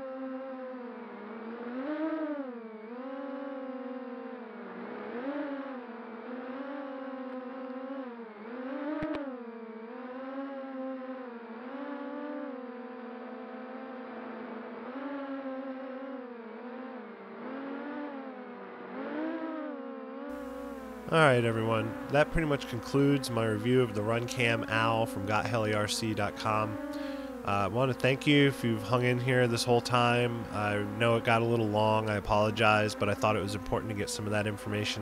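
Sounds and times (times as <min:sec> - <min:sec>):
drone motors whining: 0:20.3 - 0:35.0.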